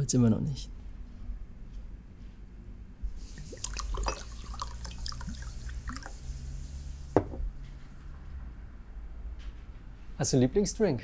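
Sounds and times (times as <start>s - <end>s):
liquid pouring into glass: 3.2s - 7.1s
glass clinks: 3.7s - 4.8s
glass knocking on table: 7.2s - 7.4s.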